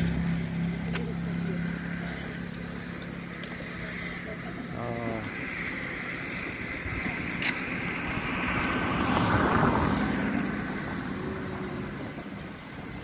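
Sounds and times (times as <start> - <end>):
road vehicle passing by: 0.0 - 13.0.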